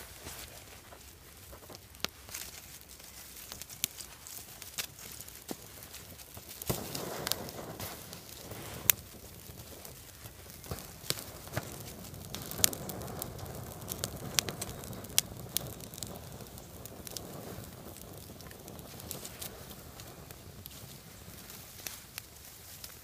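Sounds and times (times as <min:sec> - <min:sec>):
fire crackling and snapping: 0:00.0 - 0:23.0
twigs rustling: 0:00.0 - 0:23.0.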